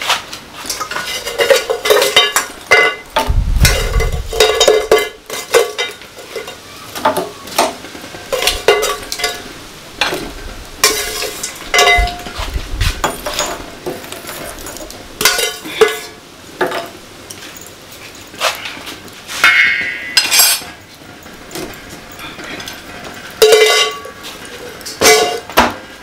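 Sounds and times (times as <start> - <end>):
metal spoon scraping pots: 0.6 - 12.4, 13.0 - 18.8, 19.4 - 20.8, 21.5 - 25.6.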